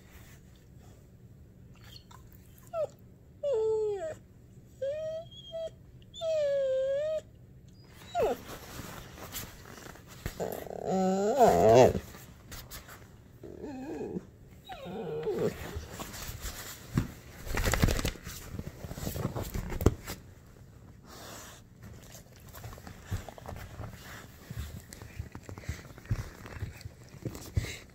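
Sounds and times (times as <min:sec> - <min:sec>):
dog whining: 0:01.8 - 0:08.6, 0:10.3 - 0:12.1, 0:13.4 - 0:16.1
scuffling on leather recliner: 0:22.6 - 0:27.9.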